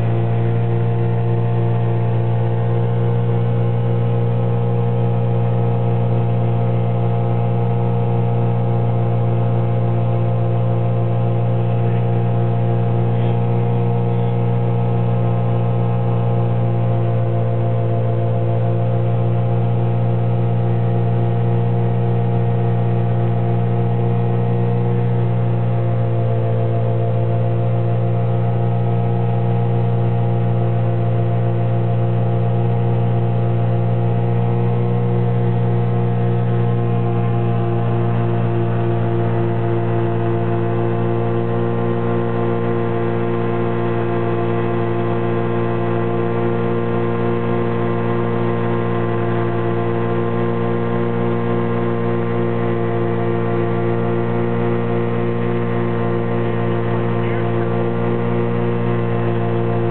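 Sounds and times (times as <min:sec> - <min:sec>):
aircraft engine droning: 0:23.6 - 0:59.9.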